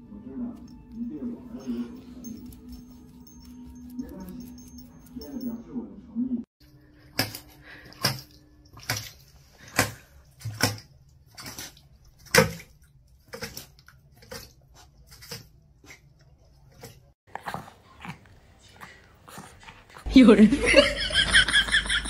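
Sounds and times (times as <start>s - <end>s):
dog splashing in metal water bowl: 7.0s - 17.2s.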